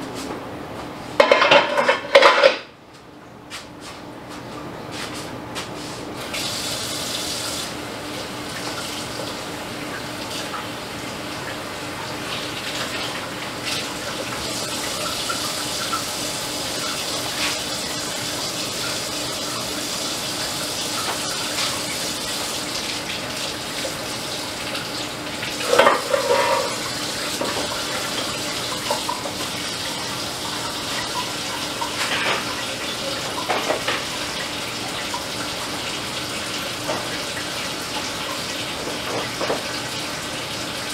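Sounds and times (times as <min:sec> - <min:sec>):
dishes clinking: 0:01.2 - 0:02.7, 0:25.6 - 0:26.8
tap running into sink: 0:38.8 - 0:39.8.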